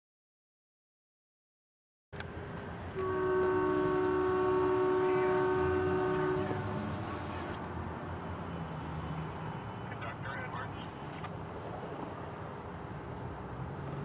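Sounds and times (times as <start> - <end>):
train horn blast: 3.0 - 7.6
steady hiss: 3.4 - 7.6.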